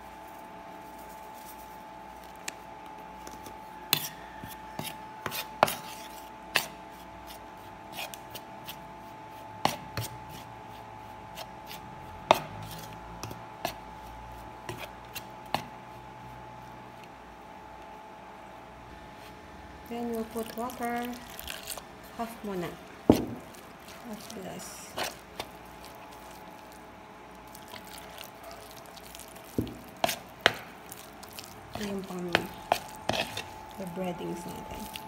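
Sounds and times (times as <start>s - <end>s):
fork rubbing through flour: 0.2s - 2.4s, 3.3s - 16.5s, 23.4s - 26.8s, 27.4s - 35.0s.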